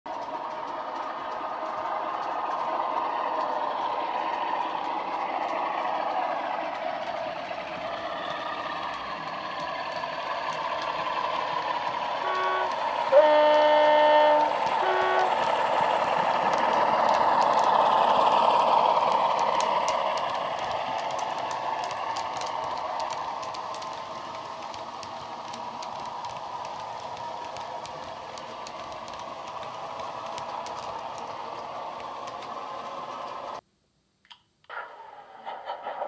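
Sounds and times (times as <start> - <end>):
wheels clicking over rail joints: 0.1 - 33.6
two-tone horn: 12.2 - 15.4.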